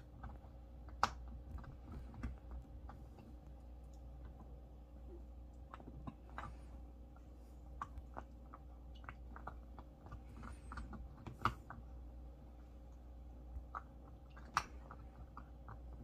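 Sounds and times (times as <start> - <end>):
dog chewing food: 0.0 - 4.7, 5.5 - 12.0, 13.4 - 16.0
loud chewing snap: 0.0 - 12.0, 12.9 - 16.0.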